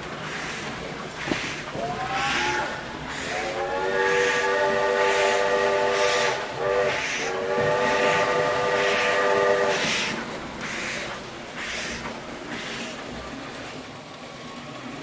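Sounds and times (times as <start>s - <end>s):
steam chuffing: 0.0s - 15.0s
steam whistle blasts: 1.8s - 10.2s.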